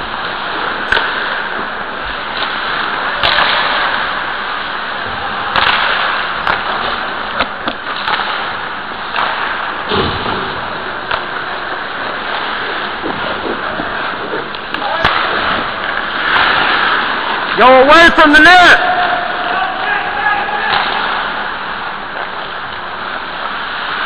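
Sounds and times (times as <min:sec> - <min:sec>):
hockey sticks and puck clacking: 0:00.2 - 0:04.8, 0:05.5 - 0:10.2, 0:11.0 - 0:24.0
dull thump: 0:09.9 - 0:10.6
skates hissing on ice: 0:11.2 - 0:17.6, 0:20.6 - 0:24.0.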